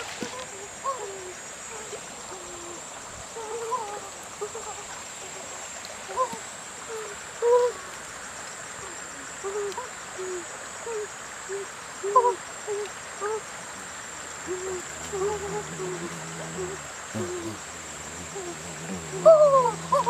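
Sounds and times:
low hooting animal calls: 0:14.4 - 0:20.0.

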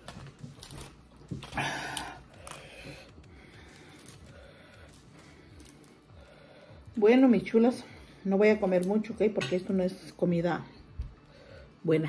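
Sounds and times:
tortilla being torn: 0:00.0 - 0:06.3.

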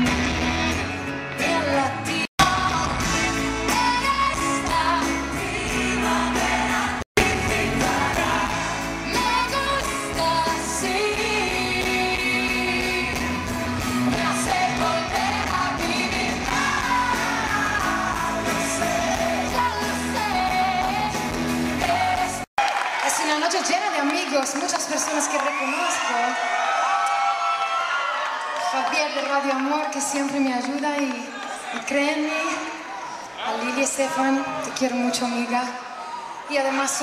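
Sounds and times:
live pop band: 0:00.0 - 0:22.5
woman singing: 0:01.4 - 0:22.5.

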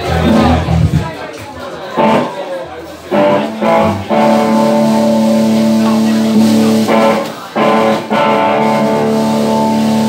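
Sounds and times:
live rock band playing: 0:00.0 - 0:01.1, 0:01.9 - 0:10.0.

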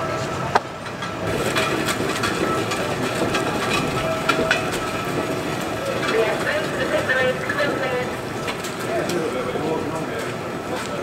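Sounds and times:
heavy engine idling: 0:00.0 - 0:11.0
knocks and clanks: 0:00.5 - 0:11.0.

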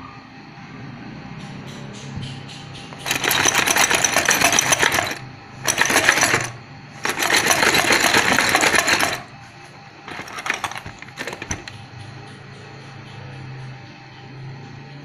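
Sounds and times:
metal parts rattling in plastic can: 0:02.9 - 0:09.5, 0:10.1 - 0:11.8.

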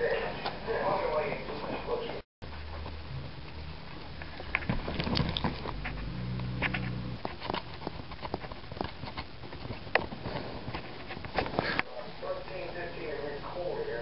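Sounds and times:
low hum: 0:02.4 - 0:09.8
dog teeth clicking and snapping: 0:04.5 - 0:06.0, 0:06.6 - 0:10.2.

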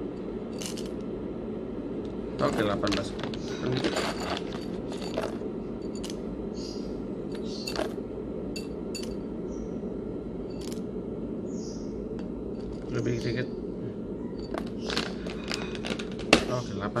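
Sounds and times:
low background hum: 0:00.0 - 0:17.0
scoop and beans clinking on glass: 0:03.7 - 0:06.2, 0:07.4 - 0:07.9.

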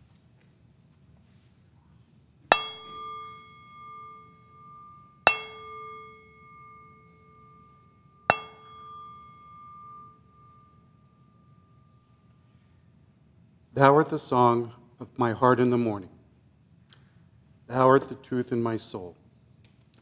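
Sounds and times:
singing bowl ringing: 0:02.5 - 0:12.8.

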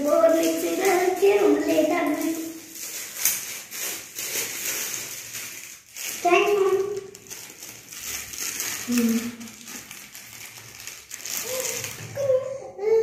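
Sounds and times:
child's voice with held sounds: 0:00.0 - 0:02.8, 0:06.1 - 0:07.4, 0:08.9 - 0:09.6, 0:11.4 - 0:13.0.

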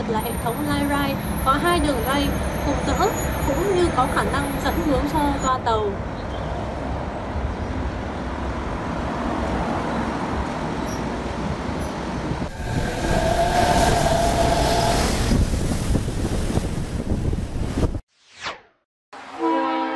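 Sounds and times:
monorail trains running: 0:00.0 - 0:17.9
street traffic: 0:00.0 - 0:17.9
steady whine: 0:12.5 - 0:16.0.

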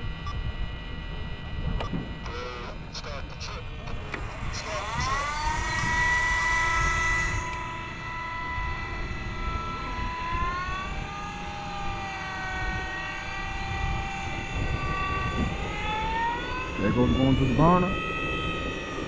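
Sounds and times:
small turbine engine whine: 0:00.0 - 0:19.0.

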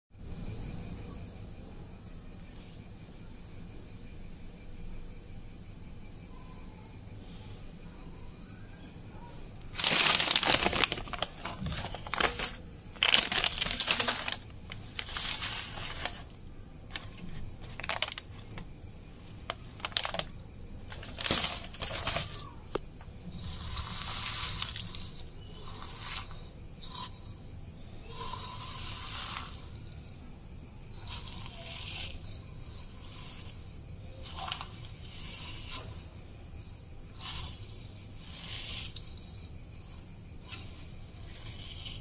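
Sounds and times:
plastic packet crinkling: 0:09.7 - 0:18.7, 0:19.4 - 0:22.5.

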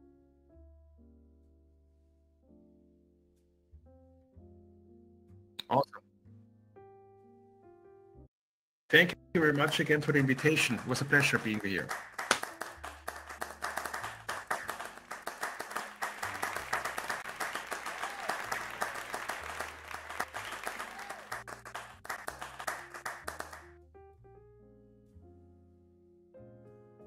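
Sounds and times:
piano music: 0:00.0 - 0:08.3, 0:08.9 - 0:27.0
applause: 0:09.4 - 0:23.8.

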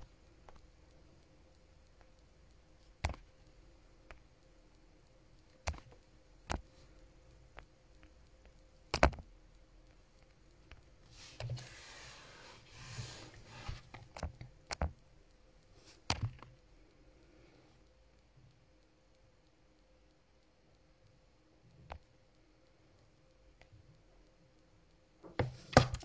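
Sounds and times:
fingers tapping on phone: 0:01.9 - 0:04.3, 0:05.6 - 0:11.7, 0:13.3 - 0:15.1, 0:15.9 - 0:16.6.

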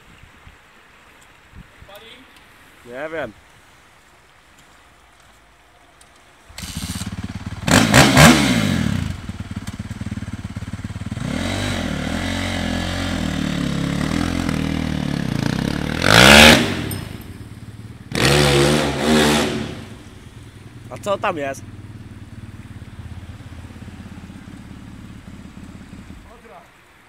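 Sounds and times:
dirt bike engine revving: 0:06.6 - 0:26.3.

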